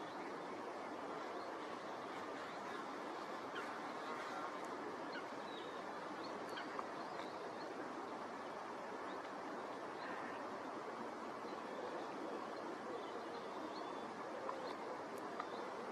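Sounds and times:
outdoor background hiss: 0:00.0 - 0:15.9
small birds chirping: 0:01.1 - 0:08.3.

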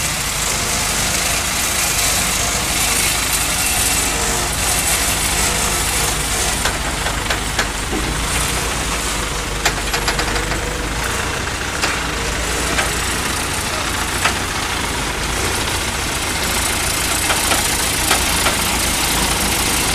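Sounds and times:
diesel engine running: 0:00.0 - 0:19.9
sharp clicks and knocks: 0:05.6 - 0:15.8, 0:16.8 - 0:19.9.

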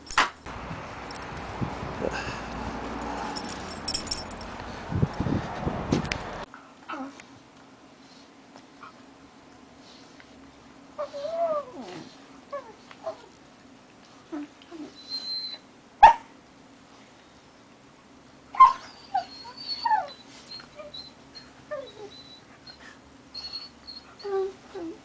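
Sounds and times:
puppies yipping and whining: 0:11.0 - 0:13.4, 0:14.3 - 0:15.7, 0:18.6 - 0:25.0
dog yelping: 0:18.6 - 0:22.4.

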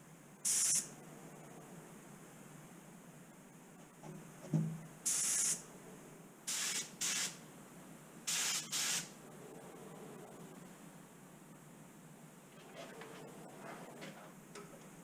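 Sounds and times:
spray gun hissing: 0:00.4 - 0:00.9, 0:05.0 - 0:05.6, 0:06.5 - 0:07.4, 0:08.3 - 0:09.2.

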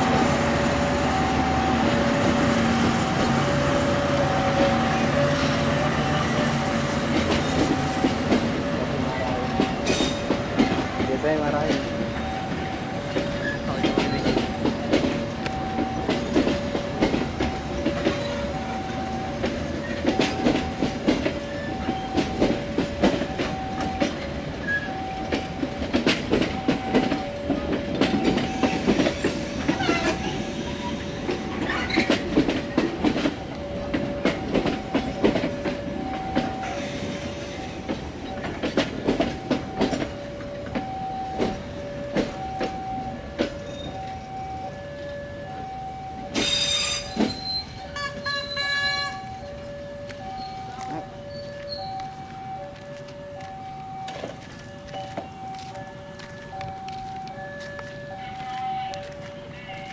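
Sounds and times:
train wheels clacking over rail joints: 0:00.1 - 0:44.4.

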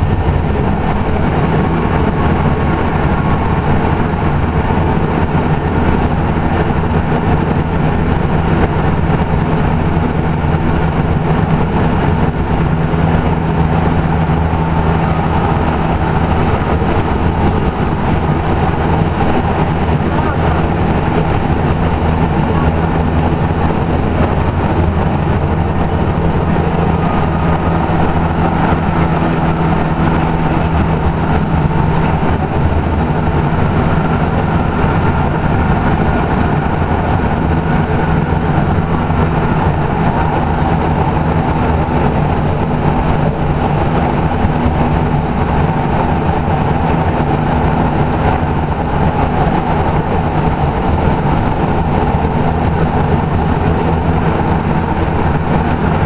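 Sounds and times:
low drive hum: 0:00.0 - 0:56.0
wheel-on-rail rumble: 0:00.0 - 0:56.0.

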